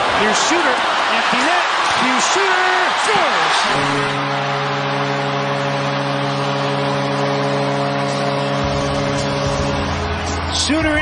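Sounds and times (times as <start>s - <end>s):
crowd cheering: 0.0s - 11.0s
goal horn blast: 0.0s - 11.0s
deep bass sound: 3.7s - 11.0s.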